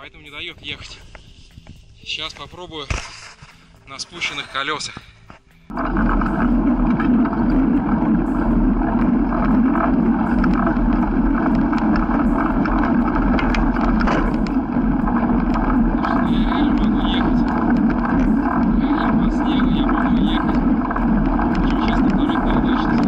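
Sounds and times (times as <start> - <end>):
bike rattling: 5.7 - 23.0
bike tyres pressing through snow: 5.7 - 23.0
wind on microphone: 5.7 - 23.0.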